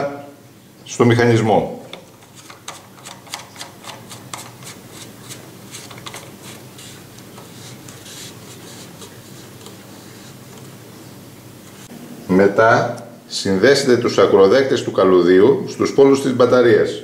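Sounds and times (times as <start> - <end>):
faint steady hiss: 0.0 - 17.0
light clicks and rubbing scrapes: 2.1 - 10.7.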